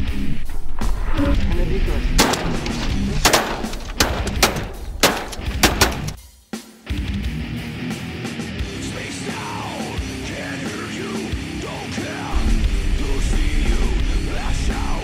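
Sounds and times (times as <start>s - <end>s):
loud rock music: 1.2s - 15.0s
shotgun blasts: 2.2s - 6.2s.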